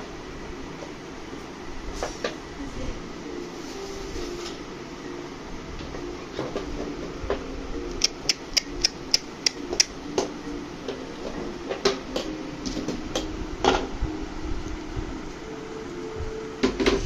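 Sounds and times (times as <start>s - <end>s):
low mechanical hum: 0.0s - 17.0s
sharp clicks: 7.9s - 10.0s.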